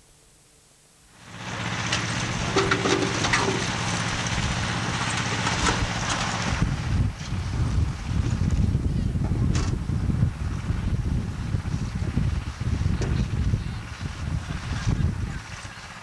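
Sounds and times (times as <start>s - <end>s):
low engine hum: 1.1s - 16.0s
wind on microphone: 5.6s - 16.0s.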